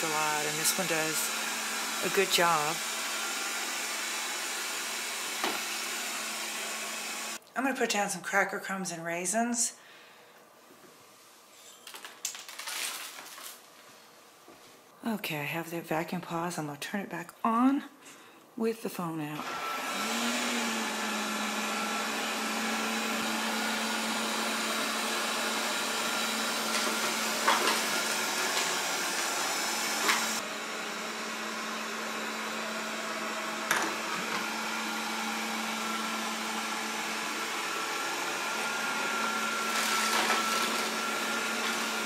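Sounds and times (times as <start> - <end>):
robot vacuum humming: 0.0 - 7.4, 19.4 - 42.0.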